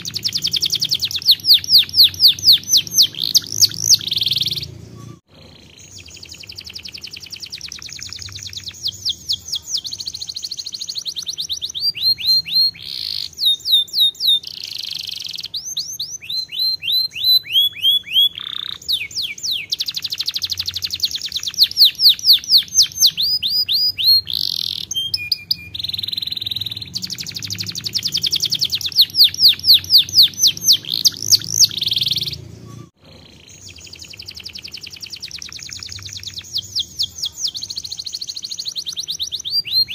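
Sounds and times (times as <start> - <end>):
canary singing trills: 0.0 - 39.9.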